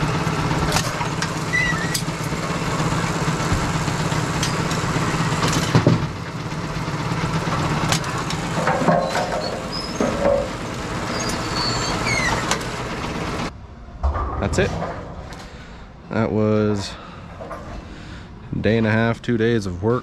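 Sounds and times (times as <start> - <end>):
machine mechanical hum: 0.0 - 20.0
short squeals: 1.0 - 2.1, 8.8 - 12.6
metallic clanks: 7.9 - 10.6, 14.0 - 16.0.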